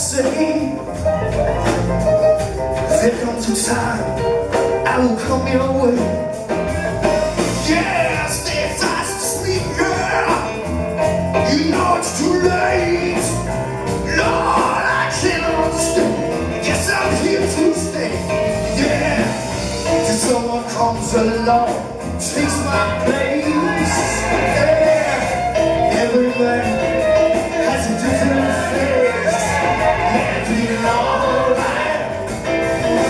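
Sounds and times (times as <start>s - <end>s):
live rock band playing: 0.0s - 33.0s
men singing into microphones: 7.6s - 10.6s, 11.4s - 33.0s.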